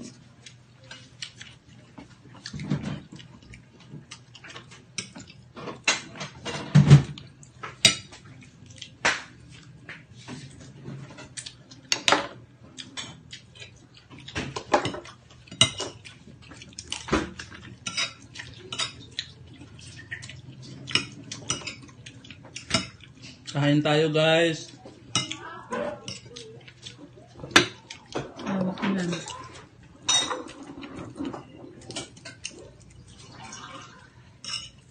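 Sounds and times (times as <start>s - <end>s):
cutlery clinking on shells and dishes: 11.1s - 23.5s, 24.8s - 29.4s, 30.0s - 32.6s, 34.4s - 34.9s.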